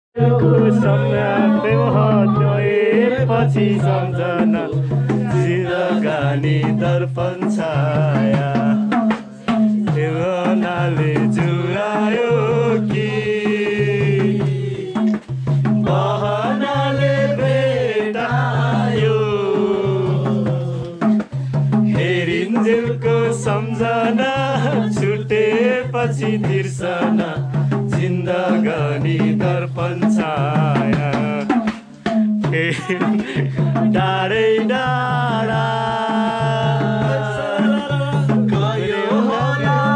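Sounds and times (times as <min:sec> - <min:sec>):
repeating low bass notes: 0:00.2 - 0:08.6
hand drum beat: 0:00.2 - 0:39.9.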